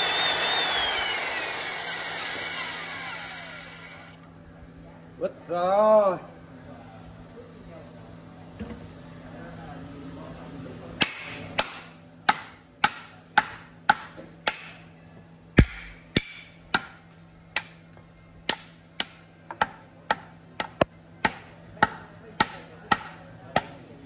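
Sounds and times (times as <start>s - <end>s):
hammer striking wood: 11.0s - 14.8s, 15.6s - 17.0s, 18.5s - 23.8s.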